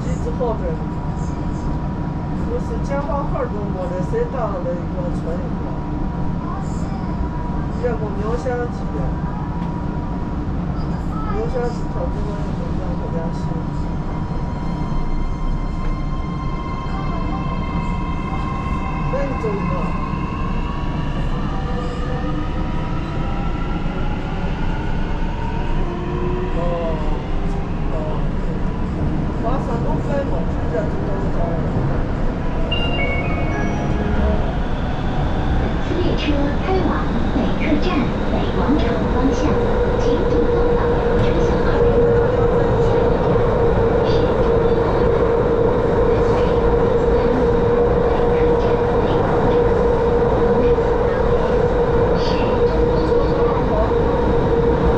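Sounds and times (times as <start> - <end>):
train wheels rumbling on track: 33.3 - 54.9.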